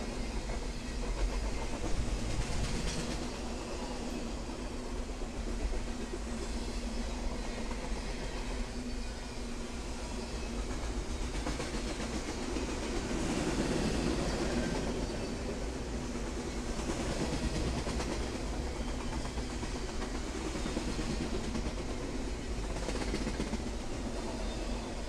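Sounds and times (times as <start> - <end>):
train wheels rolling on rails: 0.0 - 25.0.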